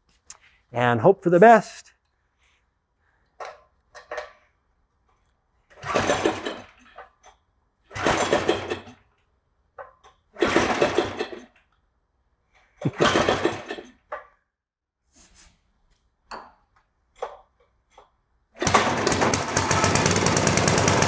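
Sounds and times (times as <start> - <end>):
engine cranking with recoil starter: 5.7 - 7.2, 7.8 - 9.2, 10.4 - 11.7, 12.8 - 14.0, 18.6 - 21.0.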